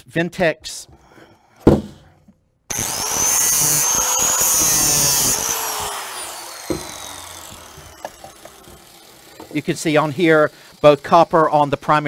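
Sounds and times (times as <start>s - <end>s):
angle grinder whine: 2.7s - 12.0s.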